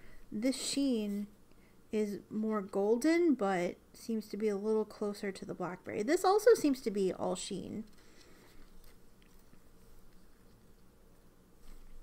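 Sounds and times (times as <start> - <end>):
hands rustling paper cards: 7.9 - 12.0.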